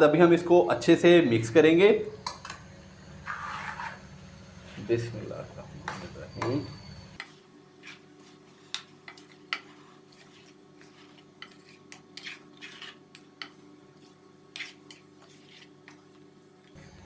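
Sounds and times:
wooden spoon scraping metal wok: 3.2 - 4.1, 7.2 - 16.1.

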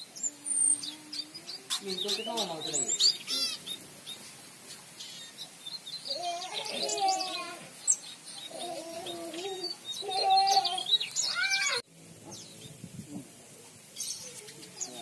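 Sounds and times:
lower wavering bird calls: 0.0 - 12.8
bird chirps and trills: 0.0 - 12.9.

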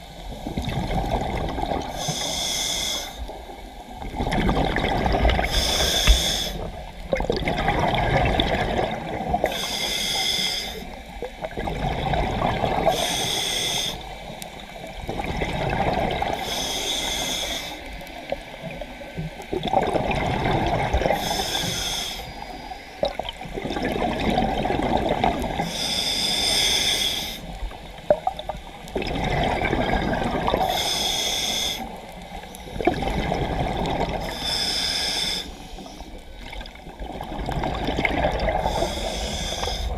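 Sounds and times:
exhaled bubbles underwater: 0.0 - 2.3, 3.1 - 39.9
scuba regulator inhalation hiss: 1.8 - 3.6, 5.4 - 6.9, 9.4 - 11.2, 12.8 - 14.3, 16.2 - 18.0, 21.1 - 23.0, 25.6 - 27.7, 30.6 - 32.7, 34.1 - 36.2, 38.5 - 39.9.

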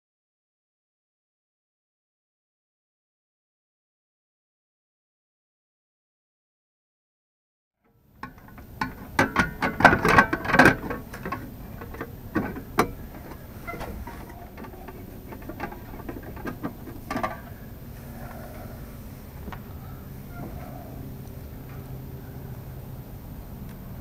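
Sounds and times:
clicks and knocks of metal box: 8.2 - 17.6.

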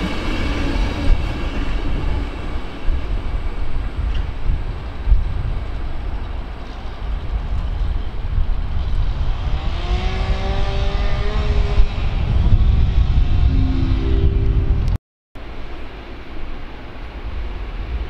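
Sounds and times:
multi-tone whine: 13.4 - 15.0.

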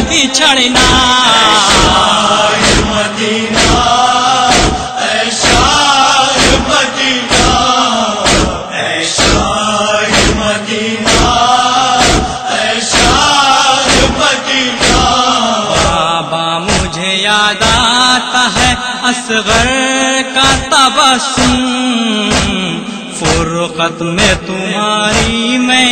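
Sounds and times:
person chanting a lament: 0.0 - 25.9
chest-beating slaps: 0.8 - 16.1, 16.7 - 17.0, 21.4 - 21.6, 22.3 - 23.5, 25.1 - 25.4.

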